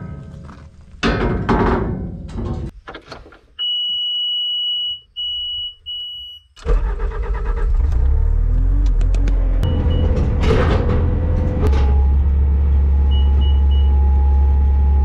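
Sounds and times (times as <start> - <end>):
diesel engine cranking and running: 6.6 - 15.0.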